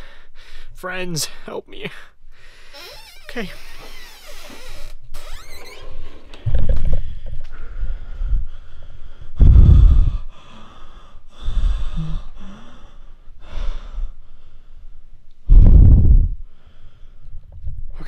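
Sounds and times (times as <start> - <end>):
man breathing heavily: 0.0 - 2.9, 6.8 - 17.5.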